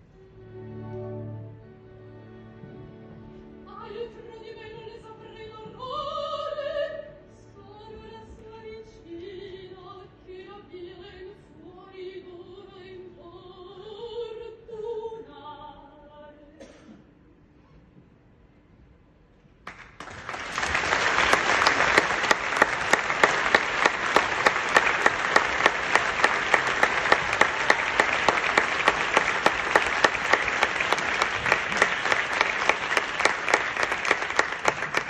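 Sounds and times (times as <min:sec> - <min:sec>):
audience applauding: 0:19.7 - 0:35.0.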